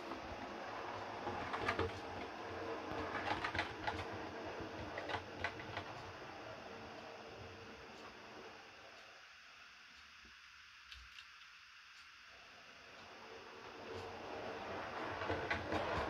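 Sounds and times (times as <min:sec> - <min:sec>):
wheels clicking over rail joints: 0:00.0 - 0:06.1, 0:13.8 - 0:16.0
model train motor hum: 0:00.0 - 0:16.0.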